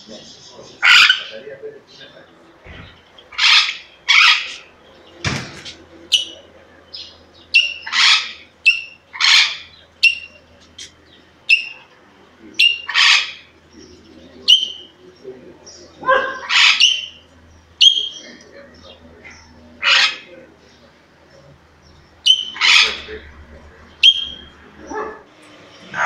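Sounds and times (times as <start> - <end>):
parrot chirping: 0.8 - 1.3, 2.7 - 4.7, 6.1 - 11.9, 12.6 - 13.6, 14.4 - 15.0, 16.0 - 18.4, 19.4 - 20.3, 21.8 - 25.2
parrot squawking: 0.8 - 1.4, 2.7 - 4.8, 6.1 - 10.4, 11.4 - 11.9, 12.6 - 13.6, 14.4 - 15.0, 15.9 - 18.4, 19.2 - 20.4, 22.1 - 25.3.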